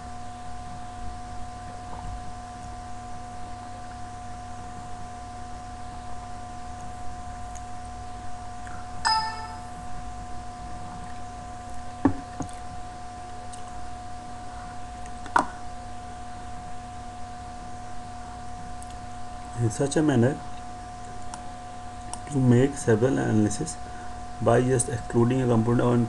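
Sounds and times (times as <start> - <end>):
electrical hum with high whine: 0.0 - 26.0
short ringing tone: 9.0 - 9.9.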